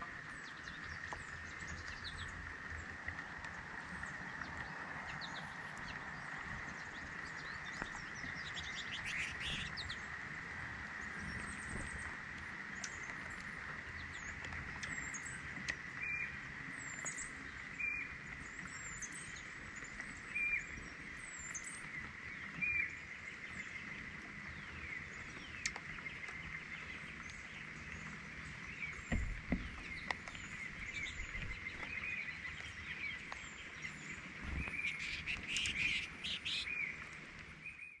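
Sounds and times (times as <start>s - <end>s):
rain hiss: 0.0s - 37.8s
birds chirping: 0.0s - 38.0s
woodpecker tapping: 29.1s - 32.0s.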